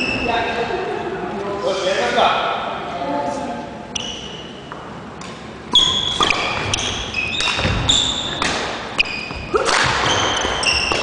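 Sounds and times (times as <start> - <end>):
racket hitting shuttlecock: 5.2 - 11.0
shoes squeaking on wooden floor: 5.8 - 11.0.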